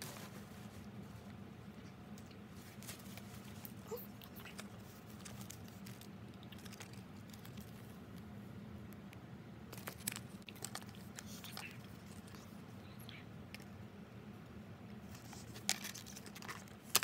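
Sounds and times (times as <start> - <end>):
paper tag rustling and crinkling: 0.0 - 1.4, 2.5 - 8.0, 9.7 - 12.6, 15.1 - 17.0
low steady hum: 0.0 - 17.0.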